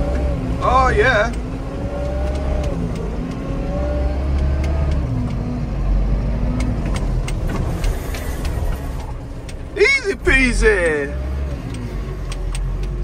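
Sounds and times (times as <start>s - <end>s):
sharp clicks and rattles: 6.5s - 9.7s, 11.6s - 13.0s.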